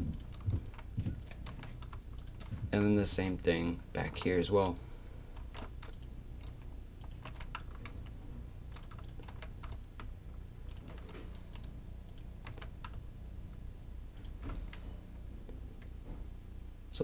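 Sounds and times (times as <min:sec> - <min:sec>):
low steady hum: 0:00.0 - 0:17.0
computer keyboard clicks: 0:00.1 - 0:02.6, 0:05.4 - 0:08.0, 0:08.7 - 0:10.1, 0:10.7 - 0:13.0, 0:14.2 - 0:14.8.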